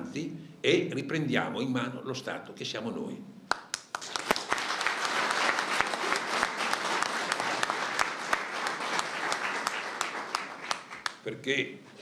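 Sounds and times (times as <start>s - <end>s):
crowd applauding: 3.5s - 11.3s.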